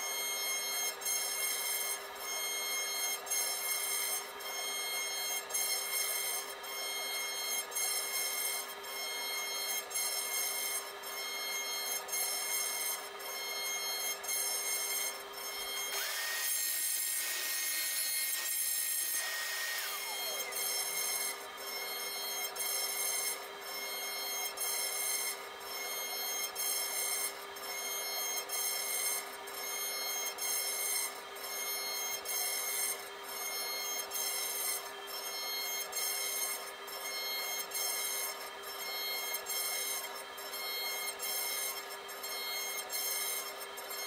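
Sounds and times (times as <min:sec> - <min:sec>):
router spindle whining: 0:00.4 - 0:44.0
router bit cutting wood: 0:13.6 - 0:25.4, 0:32.3 - 0:44.0.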